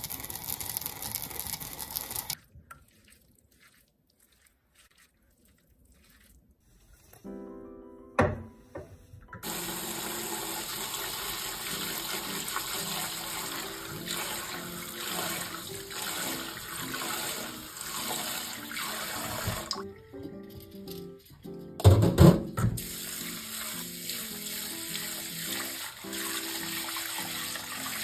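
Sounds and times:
tap water running: 0.0s - 5.0s, 9.4s - 20.0s, 21.8s - 28.0s
hands swishing rice: 2.8s - 7.4s.

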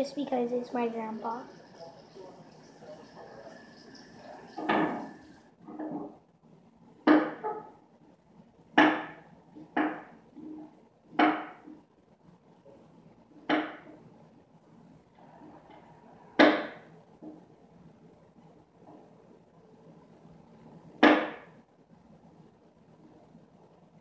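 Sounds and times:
sharp knocks: 7.0s - 7.7s, 8.8s - 10.2s, 11.1s - 11.7s, 13.4s - 14.0s, 16.4s - 17.4s, 21.0s - 21.5s.

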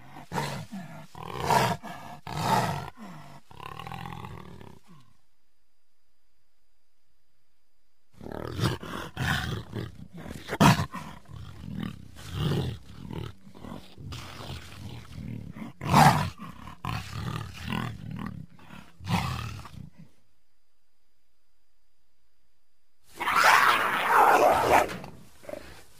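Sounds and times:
jaguar calling: 0.0s - 5.0s.

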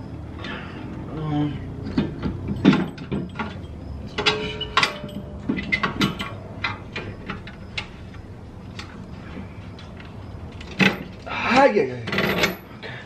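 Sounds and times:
metal clicks and clinks of hardware: 1.8s - 8.0s, 9.8s - 11.3s.

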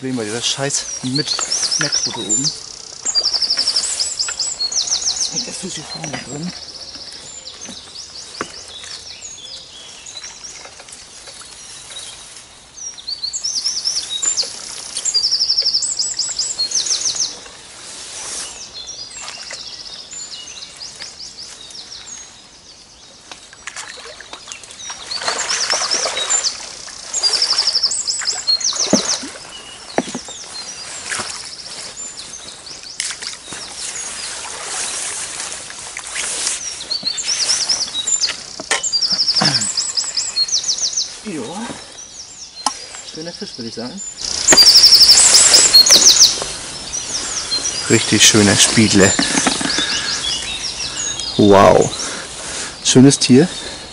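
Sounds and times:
songbirds singing: 0.0s - 53.9s
fish splashing water: 23.7s - 30.3s, 34.1s - 36.4s.

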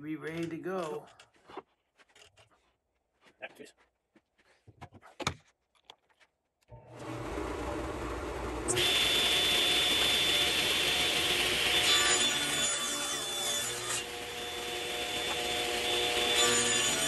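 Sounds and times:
table saw motor running: 6.7s - 17.0s
saw blade cutting wood: 6.9s - 17.0s.

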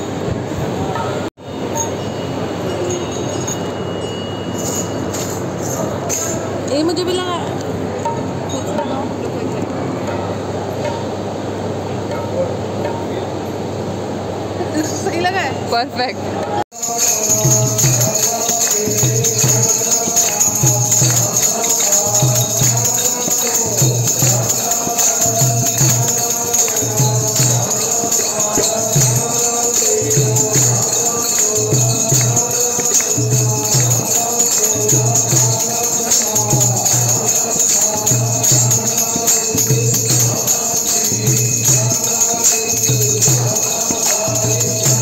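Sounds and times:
jingling hand percussion: 0.9s - 13.8s, 16.7s - 45.0s
group singing along: 16.4s - 45.0s
hand drum beating: 17.4s - 29.4s.

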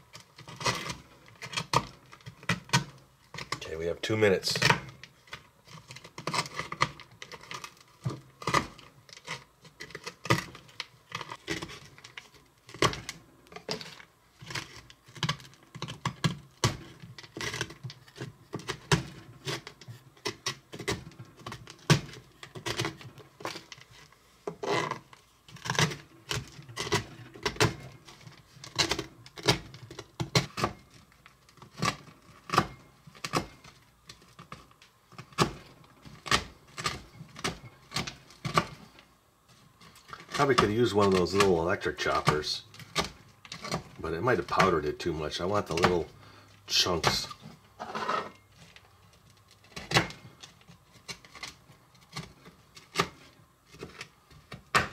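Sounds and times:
knife chopping on plastic board: 52.1s - 54.9s.

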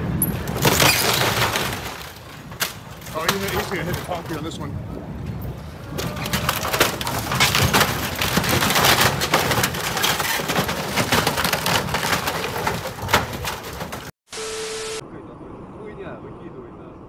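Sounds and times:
wooden timbers cracking and splintering: 0.4s - 4.5s, 5.9s - 14.1s.

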